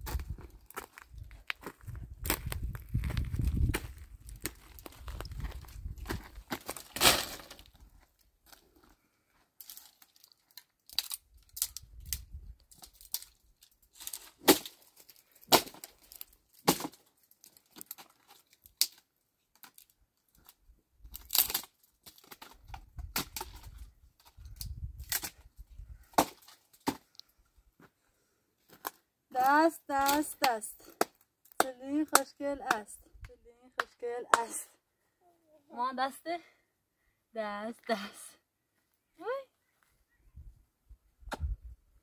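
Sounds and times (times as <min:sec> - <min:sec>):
dry material snapping and crackling: 0:09.6 - 0:25.5.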